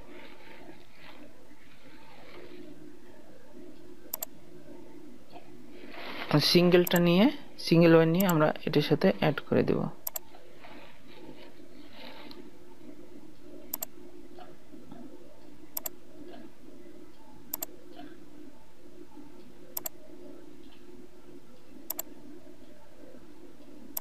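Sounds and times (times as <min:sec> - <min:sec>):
steady low hum: 0:00.0 - 0:24.0
computer mouse double clicks: 0:21.9 - 0:22.1.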